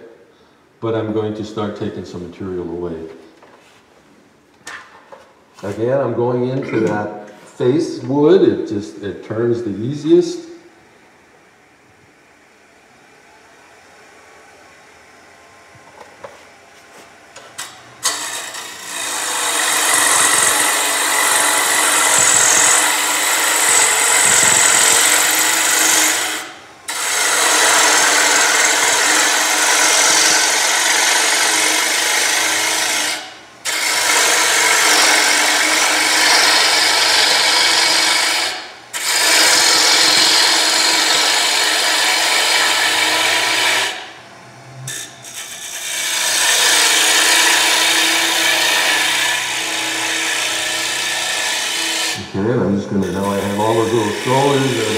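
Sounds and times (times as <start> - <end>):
lathe tool shaving wood: 17.6 - 44.1, 44.7 - 54.9.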